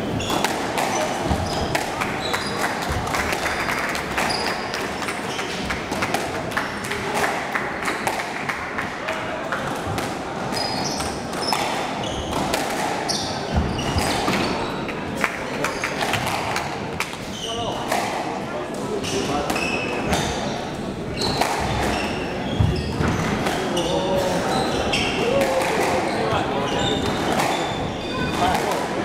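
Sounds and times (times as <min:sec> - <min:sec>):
shoes squeaking on wooden floor: 0:00.0 - 0:05.6, 0:10.5 - 0:12.5, 0:13.1 - 0:15.0, 0:21.1 - 0:25.2, 0:26.0 - 0:28.5.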